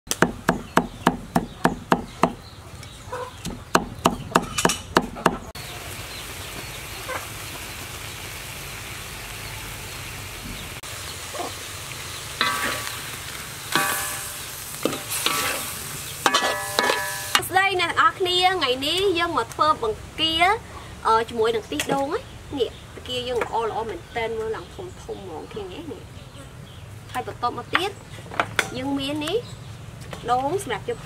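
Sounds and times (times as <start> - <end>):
knife chopping on stone: 0.1 - 2.4
sauce sizzling in a wok: 5.6 - 17.6
metal spatula scraping a wok: 12.4 - 17.4.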